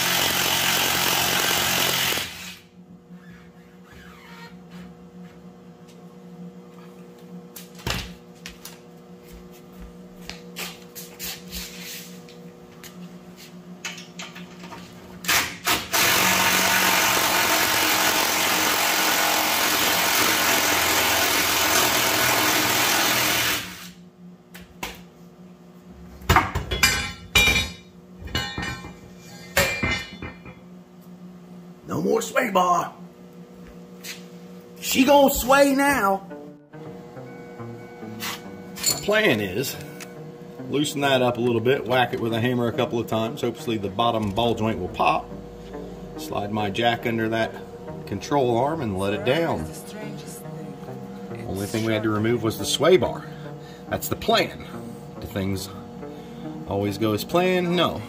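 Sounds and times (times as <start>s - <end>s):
impact wrench hammering: 26.3s - 30.6s.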